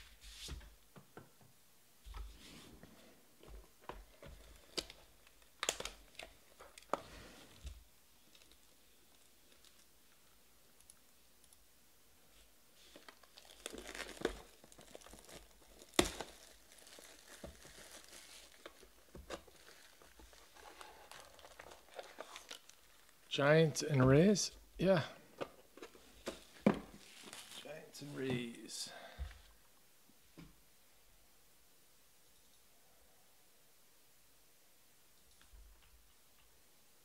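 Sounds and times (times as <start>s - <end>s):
shrink wrap tearing and crinkling: 4.4s - 7.0s, 12.8s - 23.3s, 26.9s - 27.8s.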